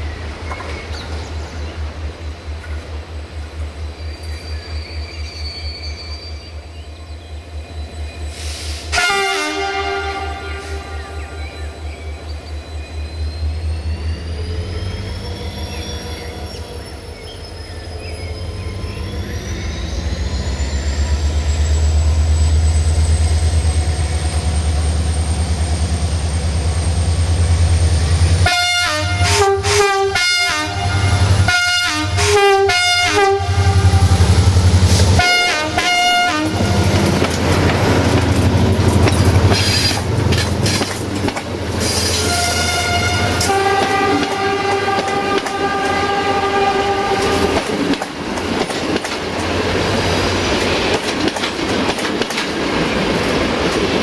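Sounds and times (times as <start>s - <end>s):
diesel locomotive engine hum: 0.0s - 54.0s
train horn blasts: 8.8s - 11.6s, 28.4s - 37.1s, 42.0s - 47.8s
wheels clattering over rail joints: 36.6s - 42.3s.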